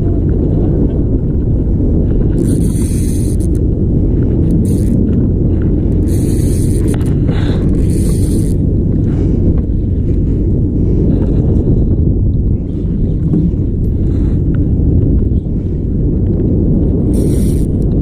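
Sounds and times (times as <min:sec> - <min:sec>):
boat low rumble: 0:00.0 - 0:18.0
bursts of hiss: 0:17.2 - 0:17.8.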